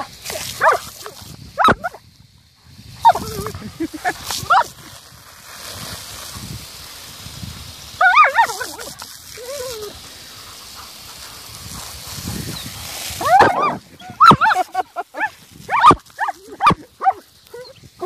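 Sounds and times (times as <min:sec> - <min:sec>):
spraying water hiss: 0:00.0 - 0:18.0
dogs yelping: 0:00.6 - 0:00.8, 0:01.6 - 0:02.0, 0:03.0 - 0:03.5, 0:04.4 - 0:04.7, 0:08.0 - 0:10.0, 0:13.2 - 0:17.8.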